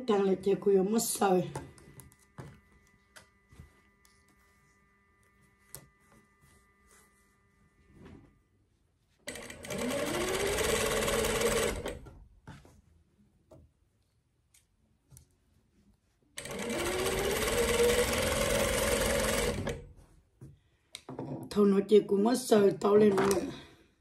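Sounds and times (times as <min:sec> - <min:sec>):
sewing machine stitching: 0:09.3 - 0:12.2, 0:16.4 - 0:19.9.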